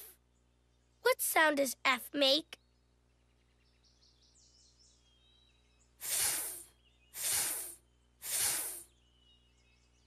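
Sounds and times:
person making hissing f sound: 6.0 - 8.9.

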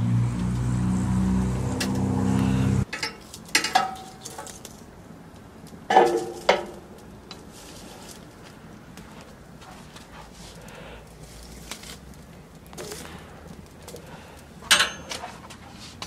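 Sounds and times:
metal clanks and clinks: 2.9 - 4.7, 14.6 - 15.3.

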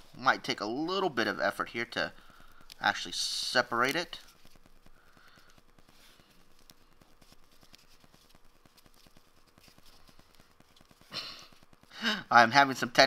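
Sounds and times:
dry leaf crackling: 3.6 - 11.7
leaf rustling: 6.0 - 11.6.

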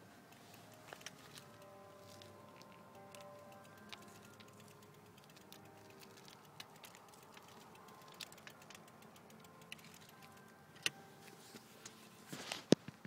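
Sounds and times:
distant church bells: 0.0 - 12.6
footsteps crunching on mulch: 12.3 - 12.8.

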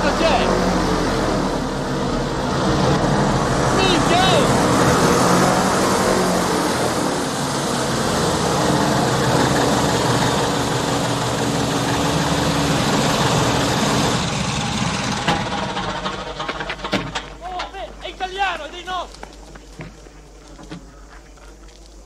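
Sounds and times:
propeller aircraft engine: 0.0 - 17.4.

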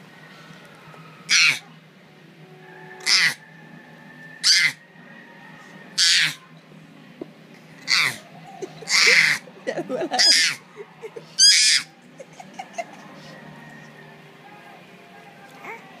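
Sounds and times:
baby squealing: 1.3 - 1.6, 3.0 - 3.4, 4.4 - 4.8, 6.0 - 6.4, 7.8 - 9.5, 10.1 - 10.7, 11.3 - 12.0.

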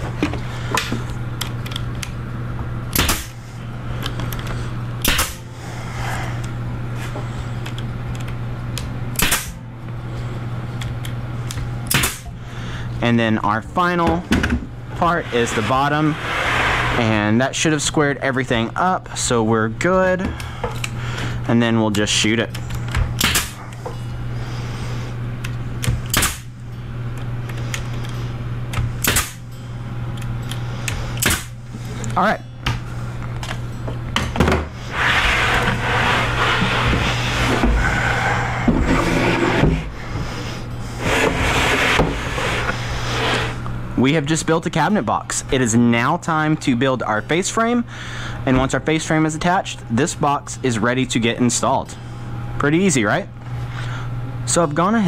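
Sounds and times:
steady low hum: 0.0 - 55.0
pneumatic stapler firing: 2.9 - 3.4, 5.0 - 5.5, 9.1 - 9.6, 11.9 - 12.3, 23.2 - 23.6, 25.8 - 26.5, 29.0 - 29.4, 31.2 - 31.6.

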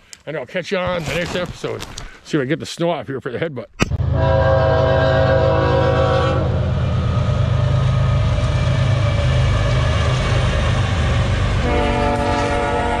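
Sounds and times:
locomotive horn chord: 4.0 - 8.3, 11.6 - 13.0
locomotive engine rumble: 4.1 - 13.0
train cars rolling: 5.5 - 13.0.

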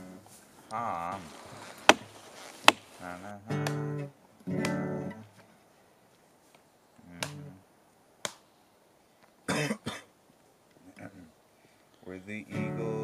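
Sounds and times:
hatchet striking wood: 1.9 - 3.0
guitar note: 3.4 - 5.2.

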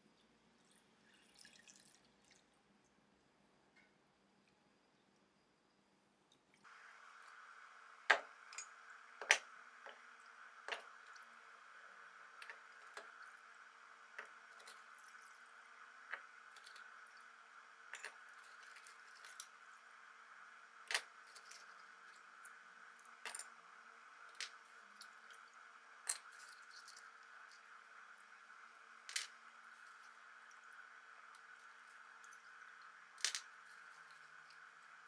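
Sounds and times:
faint steady hum: 0.0 - 35.0
metal parts clinking on wood: 17.9 - 19.5, 20.9 - 21.9, 23.2 - 23.5, 31.4 - 34.6.

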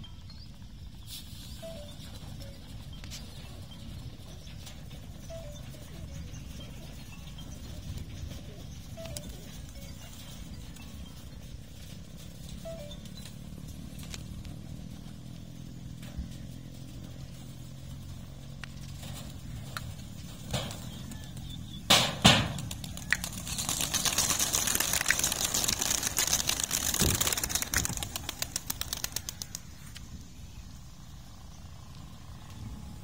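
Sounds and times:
loud sharp knocks: 21.9 - 22.7
pigeon wings flapping: 22.1 - 29.9.

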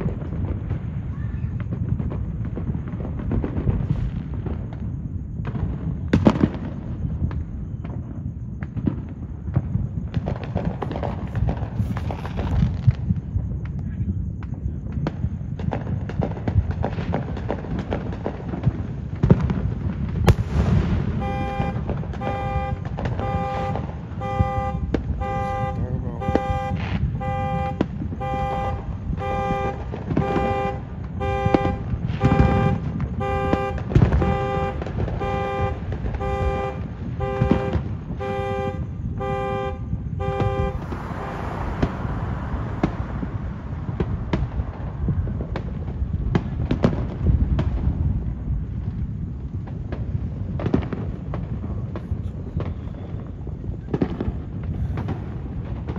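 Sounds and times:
fireworks popping and booming: 0.0 - 55.9
car alarm horn blasts: 21.1 - 41.0.

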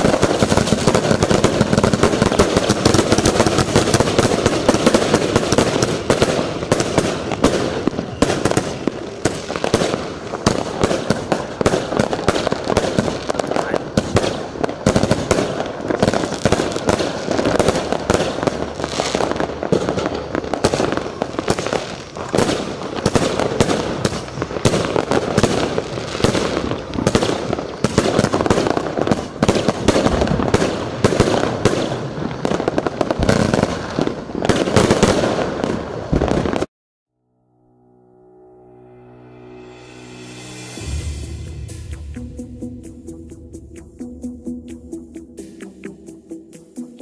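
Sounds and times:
firework cake volley of bangs: 0.0 - 36.7.

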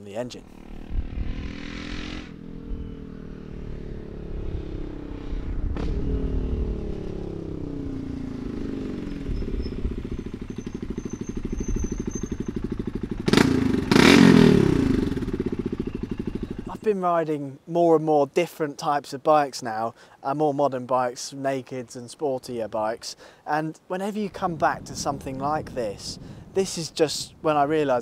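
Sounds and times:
single-cylinder motorcycle engine: 0.4 - 16.7.

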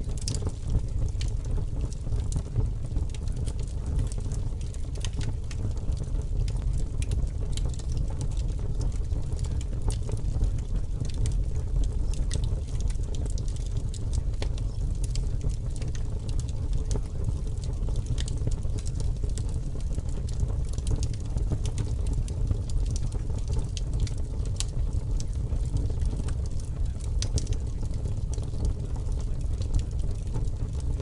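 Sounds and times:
crackles and pops: 0.0 - 31.0.

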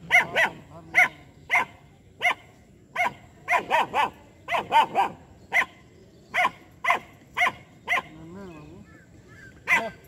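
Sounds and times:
puppy barking: 0.1 - 2.4, 3.0 - 5.7, 6.4 - 8.2, 9.7 - 10.0.

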